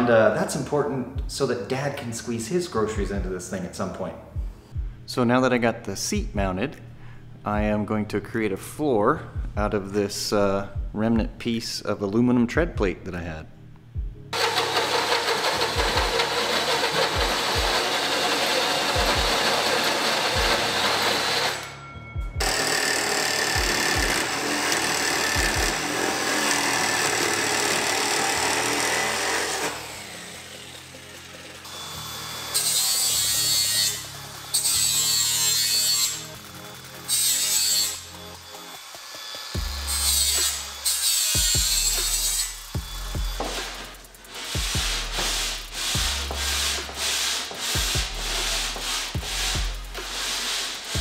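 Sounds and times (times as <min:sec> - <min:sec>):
background music with beat: 0:04.3 - 0:05.1, 0:13.8 - 0:14.4, 0:15.5 - 0:18.2, 0:18.8 - 0:21.0, 0:21.7 - 0:22.5, 0:39.6 - 0:40.8, 0:41.4 - 0:51.0
cordless drill with hole saw: 0:14.4 - 0:21.7, 0:22.4 - 0:32.6
jigsaw cutting metal plate: 0:14.4 - 0:21.7, 0:22.4 - 0:44.6
angle grinder bursts: 0:14.4 - 0:21.8, 0:22.4 - 0:36.3.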